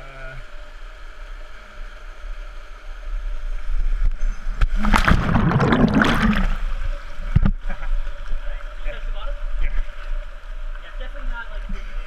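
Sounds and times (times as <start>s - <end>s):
underwater churning and bubbling: 2.2s - 8.0s
person splashing into water: 4.7s - 6.7s.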